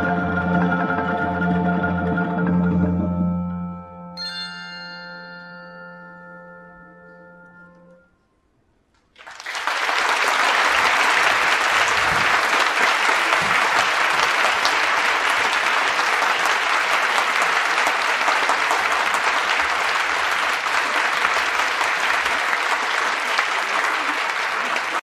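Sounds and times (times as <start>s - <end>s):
audience applauding: 9.1s - 25.0s.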